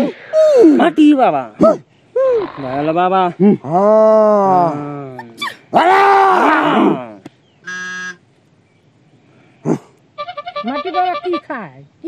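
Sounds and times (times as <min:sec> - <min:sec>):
drawn-out wavering vocal cry: 0:01.6 - 0:02.9, 0:05.2 - 0:07.0
electronic buzzer tone: 0:07.6 - 0:08.2.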